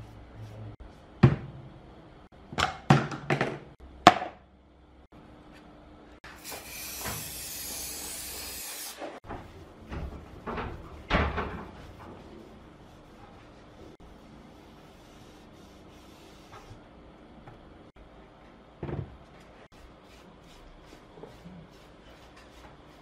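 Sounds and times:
aerosol can spraying: 6.4s - 8.9s.

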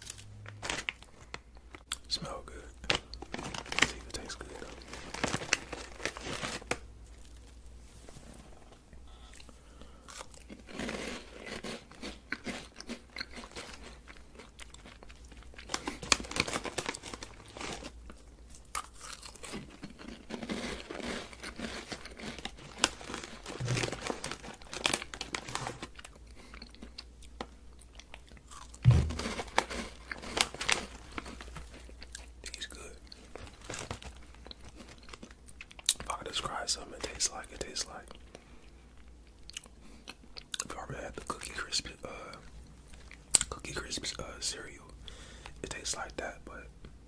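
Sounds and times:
candy crunching: 0.0s - 7.6s, 9.2s - 44.9s
low thud: 28.8s - 29.5s.

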